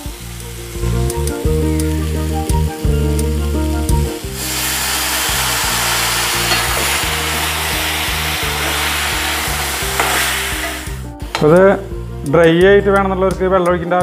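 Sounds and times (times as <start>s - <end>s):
water sizzling in hot pan: 0.0s - 11.6s
background music: 0.0s - 14.0s
metal spoon stirring: 10.0s - 10.8s.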